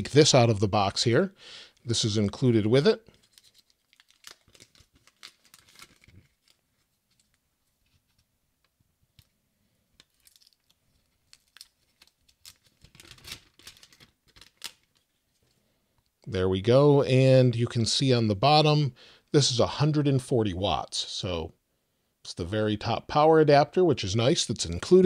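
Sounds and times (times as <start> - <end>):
plastic wrap crinkling and tearing: 3.1 - 8.0, 10.0 - 15.4.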